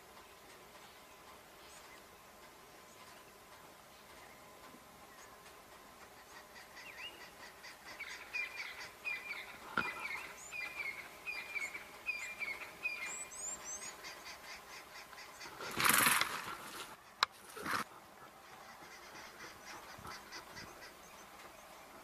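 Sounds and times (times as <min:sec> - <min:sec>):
bird chirping: 0:00.1 - 0:16.3
loud rustling burst: 0:15.5 - 0:17.9.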